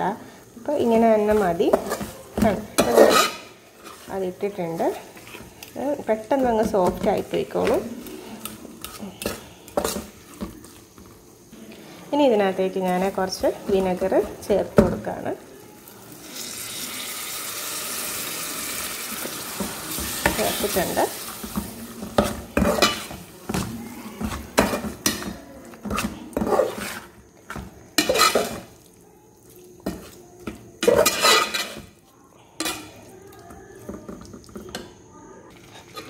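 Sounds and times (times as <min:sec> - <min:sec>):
vinegar sizzling in hot paste: 0:00.0 - 0:14.5, 0:15.6 - 0:32.0
metal spoon scraping pot: 0:01.3 - 0:10.4, 0:22.1 - 0:27.2, 0:28.0 - 0:28.7, 0:30.8 - 0:31.9.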